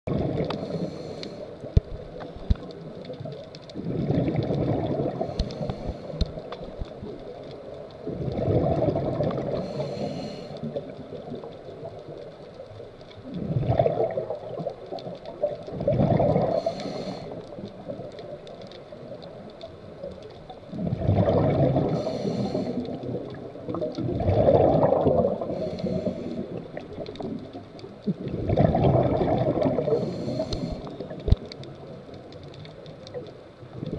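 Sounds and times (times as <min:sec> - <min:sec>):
gurgling exhaust bubbles: 0:00.1 - 0:00.8, 0:03.8 - 0:05.4, 0:08.1 - 0:09.7, 0:13.3 - 0:14.8, 0:15.4 - 0:16.8, 0:20.8 - 0:25.7, 0:28.1 - 0:30.8
regulator hiss on inhale: 0:00.6 - 0:02.2, 0:05.1 - 0:06.6, 0:09.4 - 0:10.8, 0:16.4 - 0:17.7, 0:21.8 - 0:23.1, 0:25.4 - 0:26.6, 0:29.8 - 0:31.1.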